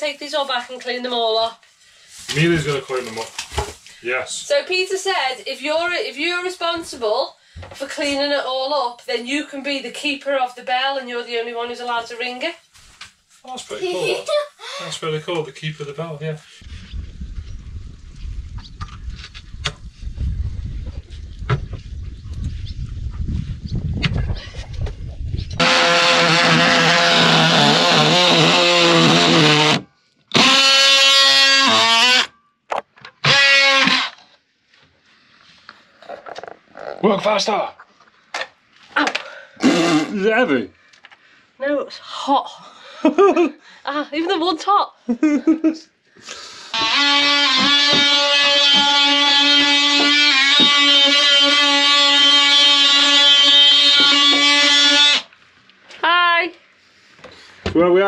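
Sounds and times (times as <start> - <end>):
oscillating multi-tool cutting wood: 25.6 - 32.3, 33.2 - 34.3, 46.8 - 55.3.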